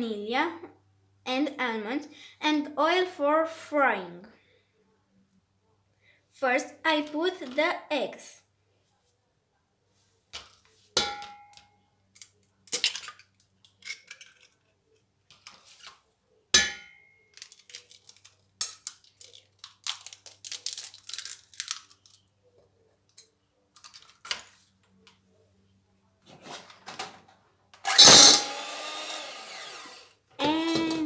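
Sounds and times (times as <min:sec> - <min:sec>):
eggshells crackling: 0:17.4 - 0:22.2.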